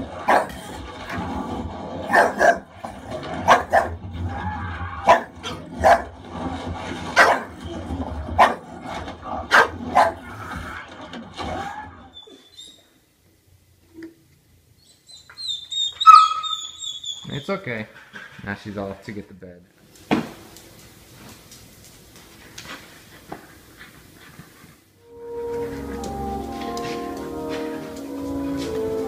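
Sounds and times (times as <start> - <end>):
television soundtrack: 0.0 - 29.0
dog barking: 0.2 - 0.6, 2.1 - 2.7, 3.4 - 4.0, 5.0 - 6.1, 7.2 - 7.6, 8.4 - 8.7, 9.5 - 10.2, 16.1 - 16.6.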